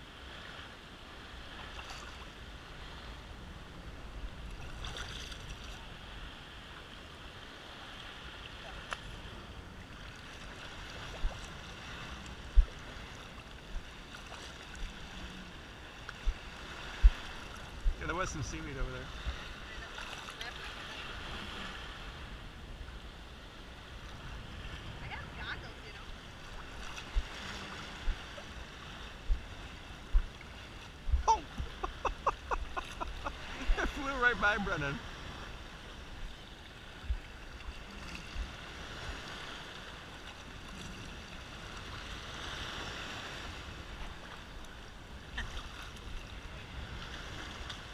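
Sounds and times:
small waves lapping on shore: 0.0 - 47.9
low thumps on microphone: 30.1 - 30.3.

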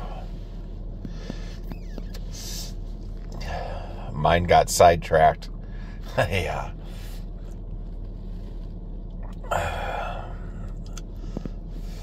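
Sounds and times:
steady low hum: 0.0 - 12.0
man exhaling: 9.3 - 12.0.

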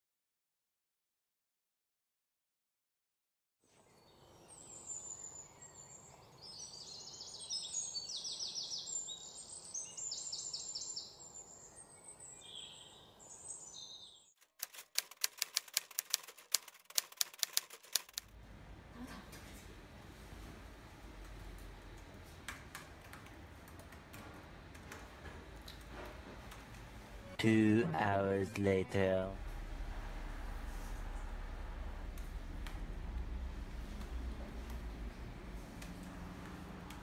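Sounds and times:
birds chirping and trilling: 3.9 - 14.3
faint laptop keyboard typing: 14.4 - 18.3, 21.2 - 26.8
sharp evenly spaced clicks: 14.4 - 18.3
low room hum: 18.3 - 37.0.

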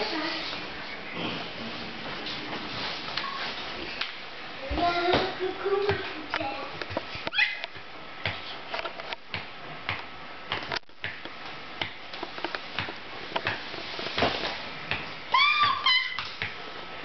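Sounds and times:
baby squealing: 7.3 - 7.6, 15.3 - 16.3.

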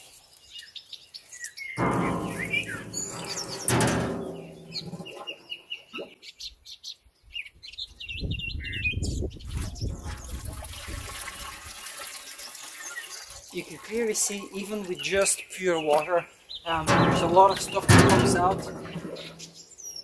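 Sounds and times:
small birds chirping: 0.0 - 3.7, 4.4 - 11.4, 12.3 - 18.3
water sloshing in metal tub: 1.8 - 5.3, 9.5 - 12.3, 16.7 - 19.6.

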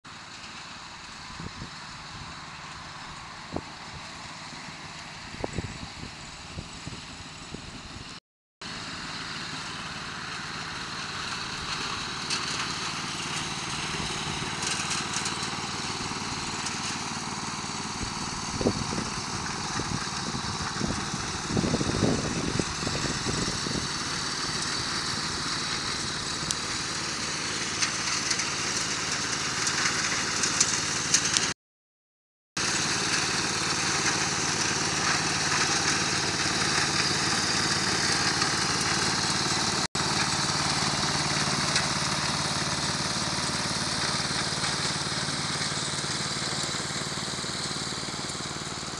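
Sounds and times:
riding mower engine running: 0.1 - 31.6, 32.6 - 48.9
engine knocking: 32.6 - 48.9.

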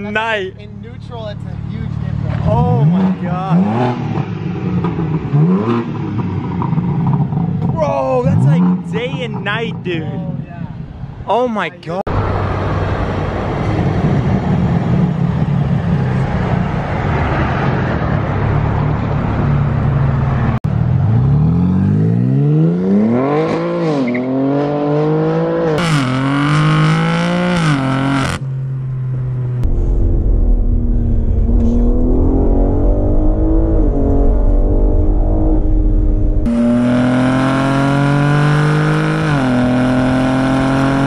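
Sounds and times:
car engine rumbling: 0.0 - 41.0
car engine accelerating: 12.1 - 41.0.

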